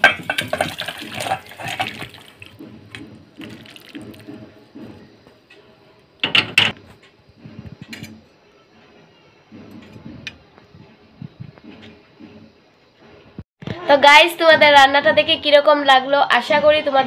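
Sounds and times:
thick curry pouring and slopping: 0.2s - 2.6s, 3.3s - 4.3s
metal spatula scraping: 7.4s - 11.0s.

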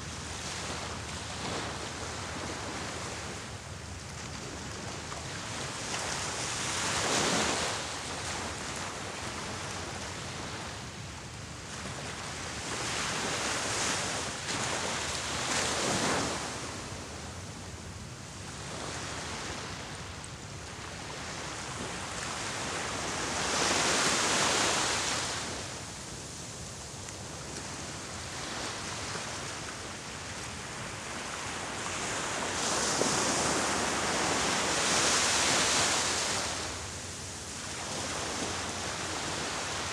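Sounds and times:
small waves breaking on beach: 0.0s - 10.8s, 11.7s - 17.2s, 18.4s - 39.9s.

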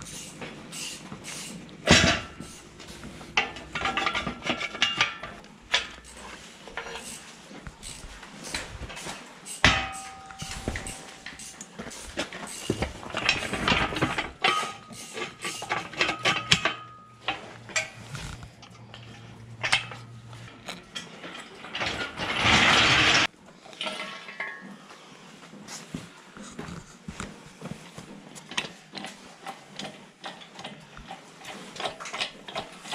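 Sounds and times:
metal parts clanking: 0.0s - 24.7s.

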